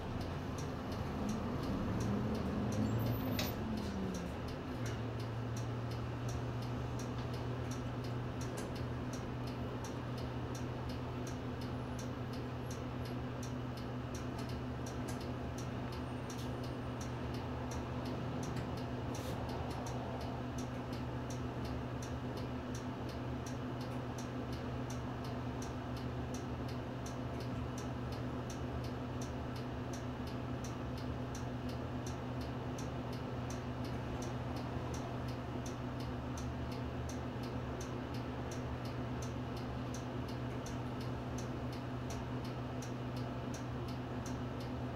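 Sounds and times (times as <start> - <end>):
diesel bus engine idling: 0.0 - 13.4
turn-signal relay ticking: 0.0 - 44.9.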